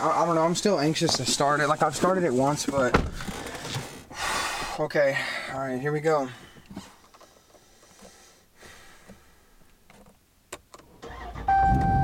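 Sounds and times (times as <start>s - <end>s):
engine starter cranking: 11.0s - 11.6s.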